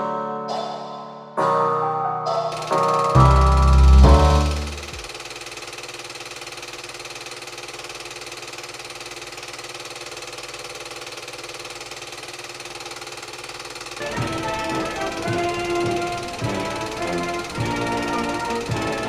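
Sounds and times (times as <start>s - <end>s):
music: 0.0s - 5.1s, 14.0s - 19.0s
film projector running: 2.5s - 19.0s.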